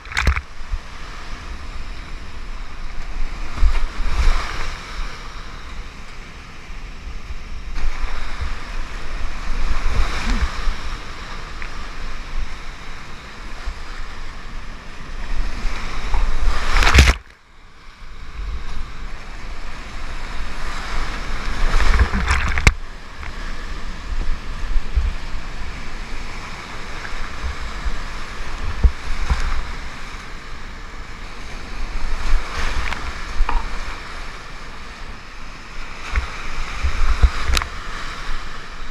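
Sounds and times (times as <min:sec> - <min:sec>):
whitewater rapids rushing: 0:07.8 - 0:14.3
low rumbling wind buffeting: 0:18.1 - 0:35.0.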